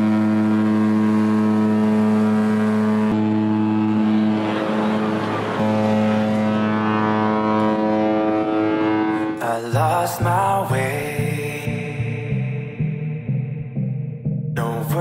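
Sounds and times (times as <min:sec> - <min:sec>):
ship's horn blasts: 0:00.0 - 0:09.6.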